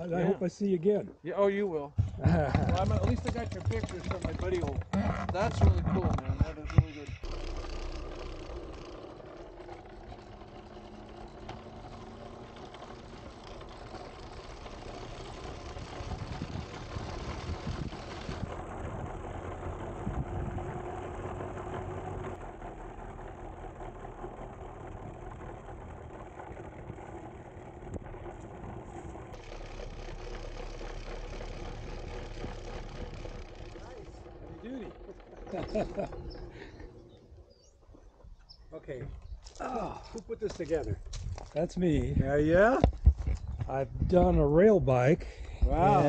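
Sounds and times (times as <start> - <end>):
knocks: 2.0 - 7.3
rail cart wheels rumbling on track: 6.2 - 37.2.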